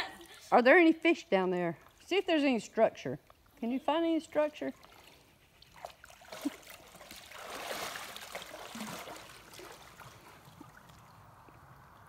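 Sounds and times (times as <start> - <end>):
water sloshing around legs: 4.6 - 12.0.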